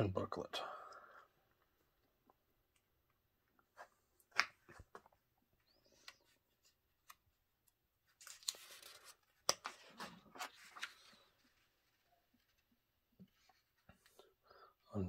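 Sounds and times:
paper clicks and crinkles: 8.1s - 12.7s
paper pages turning: 8.1s - 14.1s.

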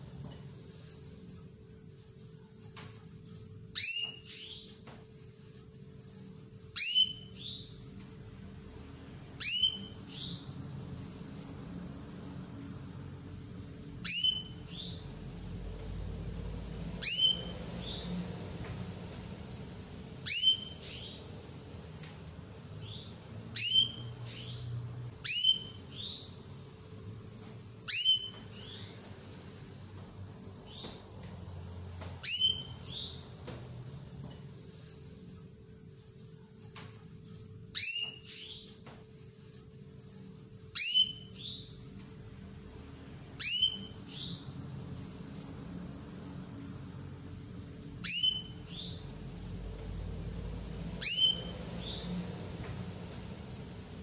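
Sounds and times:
rapid high-pitched pulsing chirp: 0.0s - 18.2s, 20.1s - 52.2s
canary downward-sliding calls: 20.2s - 21.1s, 51.0s - 51.5s.

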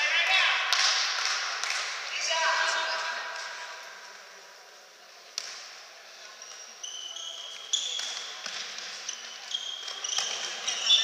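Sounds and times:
shoes squeaking on hardwood floor: 6.4s - 11.0s.

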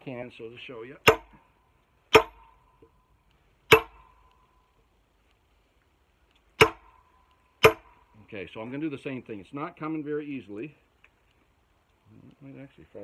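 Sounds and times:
hammer striking metal wedge: 1.0s - 1.4s, 2.1s - 2.5s, 3.7s - 4.2s, 6.6s - 7.0s, 7.6s - 7.9s.

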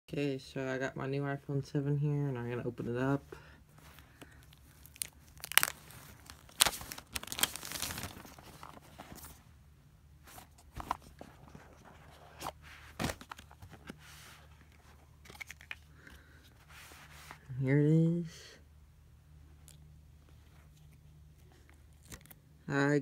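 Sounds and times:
plastic shrink wrap tearing: 4.3s - 8.8s
hands handling cardboard box: 10.2s - 15.8s.

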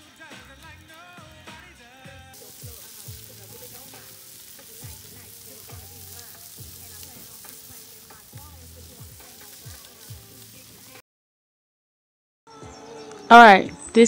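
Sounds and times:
background music with singing: 0.0s - 11.0s, 12.5s - 14.0s
food sizzling on foil: 0.0s - 11.0s.

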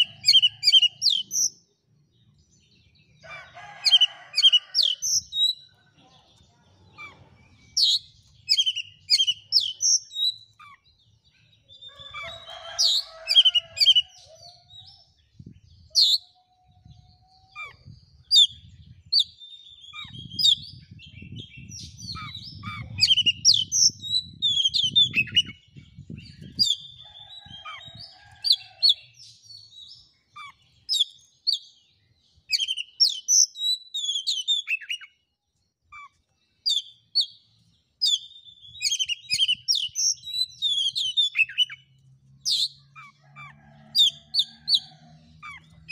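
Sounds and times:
bird singing whistled notes: 7.0s - 10.8s, 32.5s - 35.2s, 38.0s - 41.8s.

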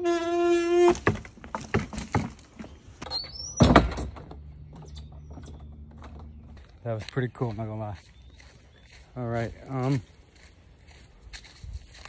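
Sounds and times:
footsteps on wooden boards: 0.7s - 3.0s
sneaker squeak: 3.0s - 3.9s.

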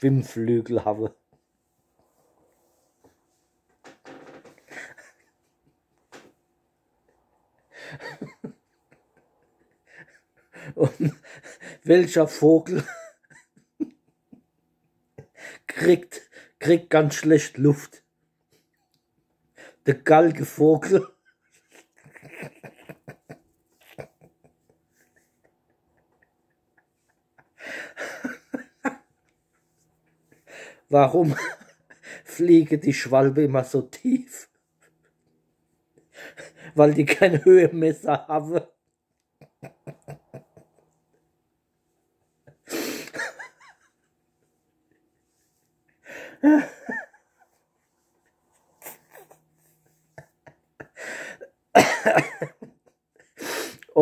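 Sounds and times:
man laughing: 4.4s - 6.3s, 7.6s - 14.4s, 20.3s - 32.5s, 36.2s - 38.6s, 39.4s - 41.3s, 42.2s - 54.0s.

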